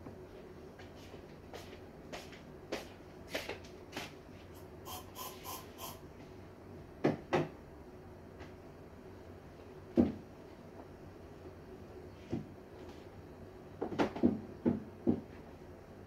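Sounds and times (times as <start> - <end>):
short hissing sounds: 4.8 - 6.1.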